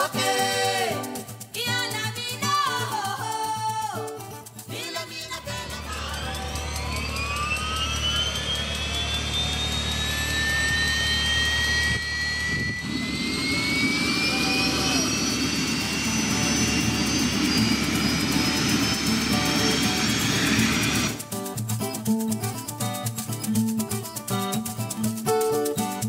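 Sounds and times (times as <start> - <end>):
helicopter turbine whine: 5.3 - 26.0
rotor rumble: 5.4 - 21.2.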